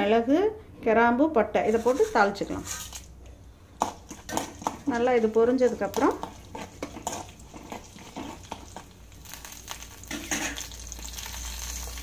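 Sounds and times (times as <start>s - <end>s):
spices frying in hot oil: 3.8s - 12.0s.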